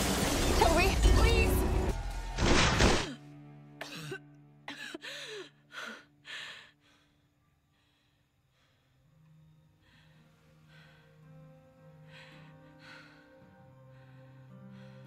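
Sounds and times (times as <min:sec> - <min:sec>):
crash: 0:00.0 - 0:03.2
woman gasping and panting: 0:04.7 - 0:07.1.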